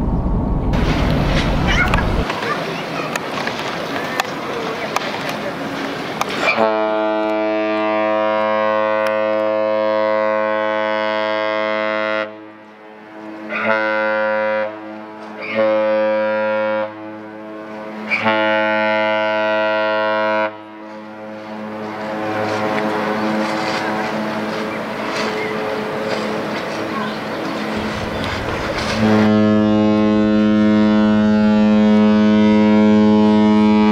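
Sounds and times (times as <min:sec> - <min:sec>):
rushing noise: 0:00.0 - 0:02.5, 0:27.6 - 0:30.9
ship horn blasts: 0:06.4 - 0:26.9, 0:27.6 - 0:33.9.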